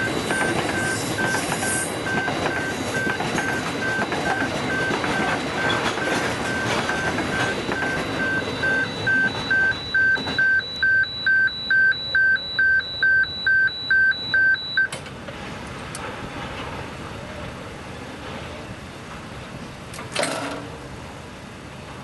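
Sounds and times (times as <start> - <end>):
train wagons rumbling past: 0.0 - 10.6, 14.9 - 22.0
level crossing warning bell: 0.0 - 15.0.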